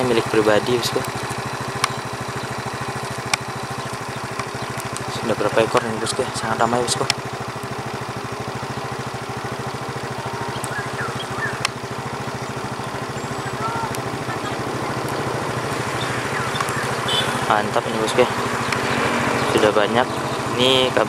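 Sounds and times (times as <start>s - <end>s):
engine idling: 0.0s - 21.0s.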